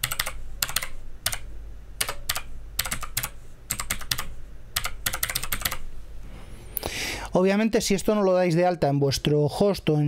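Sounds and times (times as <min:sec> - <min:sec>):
typing on computer keyboard: 0:00.0 - 0:01.4, 0:02.0 - 0:05.8.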